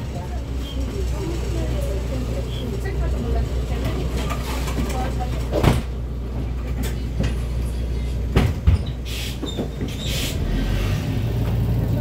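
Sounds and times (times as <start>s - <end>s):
bus engine drone: 0.0s - 12.0s
short hisses: 9.1s - 9.4s.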